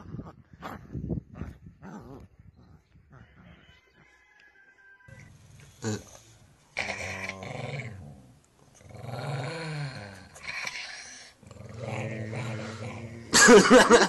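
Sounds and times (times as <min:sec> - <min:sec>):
dog growling: 0:01.4 - 0:03.5, 0:05.8 - 0:13.6.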